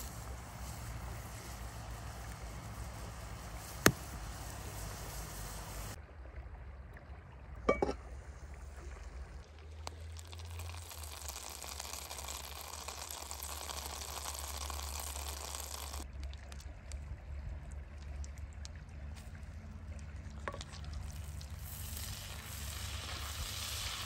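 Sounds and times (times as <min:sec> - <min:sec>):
butter sizzling in skillet: 0:00.0 - 0:06.0, 0:10.2 - 0:16.0, 0:21.1 - 0:24.0
water simmering: 0:00.0 - 0:24.0.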